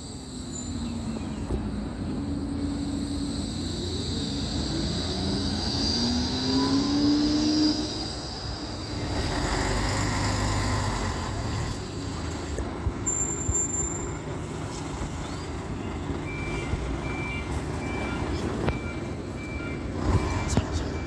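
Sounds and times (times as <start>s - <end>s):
street traffic: 0.0s - 21.0s
tram passing: 0.0s - 21.0s
diesel engine running: 1.1s - 13.0s
reversing beeper: 16.2s - 21.0s.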